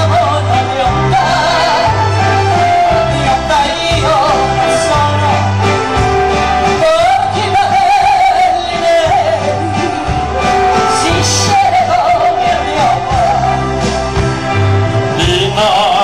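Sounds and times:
woman singing with vibrato: 0.0 - 5.0, 6.8 - 13.8
live band playing: 0.0 - 16.0.

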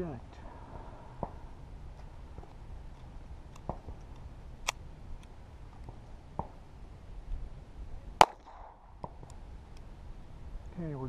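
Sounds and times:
pistol clicks: 3.0 - 6.0
pistol shot: 8.2 - 9.3.

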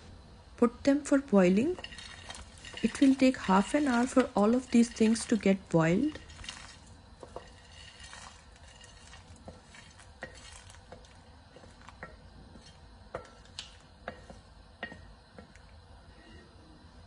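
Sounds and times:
spoon scraping ceramic plate: 1.7 - 11.8.

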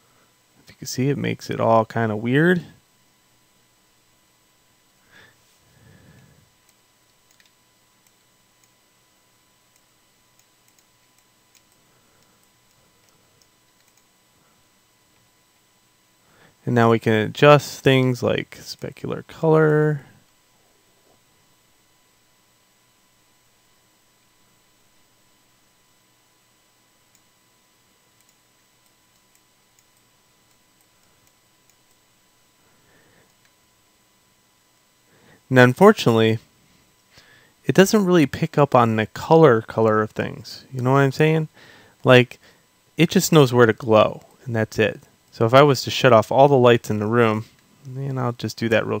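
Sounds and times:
electrical hum: 0.0 - 49.0
computer mouse clicks: 6.6 - 8.8, 9.7 - 14.1, 28.2 - 32.0.

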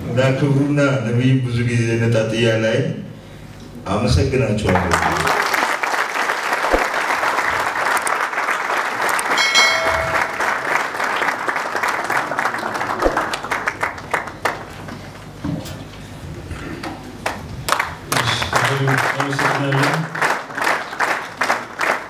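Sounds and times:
audience applauding: 4.7 - 15.2, 17.2 - 22.0.

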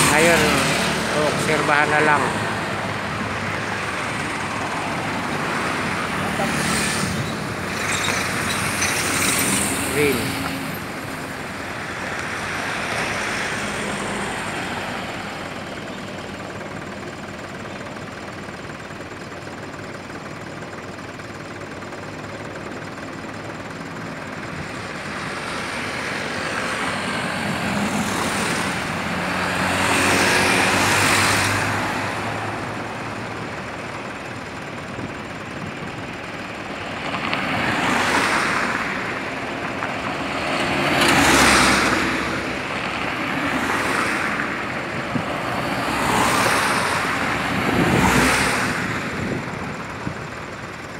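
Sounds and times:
vehicles driving past: 0.0 - 50.9.

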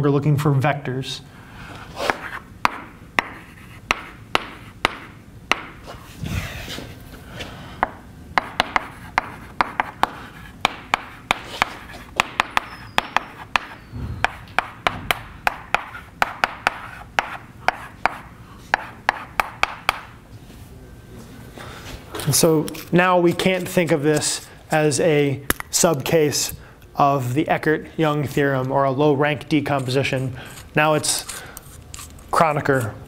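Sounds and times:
chalk tapping and scratching: 2.0 - 6.0, 8.4 - 20.0, 29.7 - 32.9.

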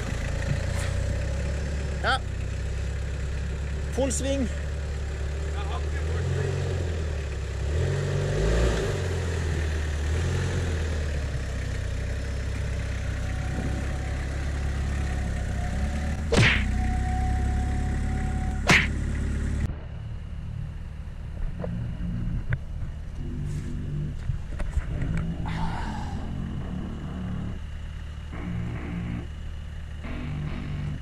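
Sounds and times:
distant engine drone: 0.0 - 31.0
pickup engine running at low revs: 0.0 - 31.0
sharp cracks: 16.3 - 16.8, 18.6 - 19.2.

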